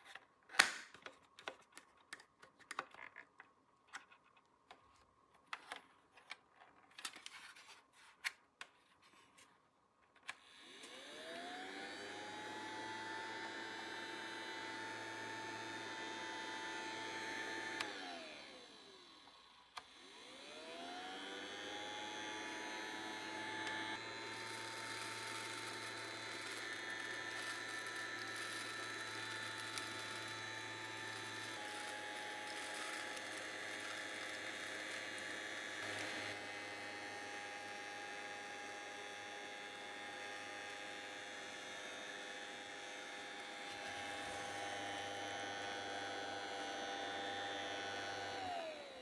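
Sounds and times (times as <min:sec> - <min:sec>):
toy electric motor whirring: 0:17.1 - 0:49.0.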